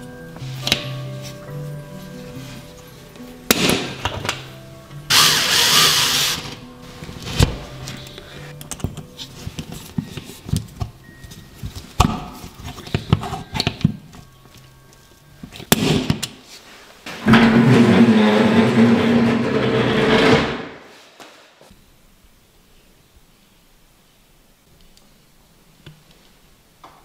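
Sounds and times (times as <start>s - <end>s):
cordless drill running: 5.1s - 6.5s.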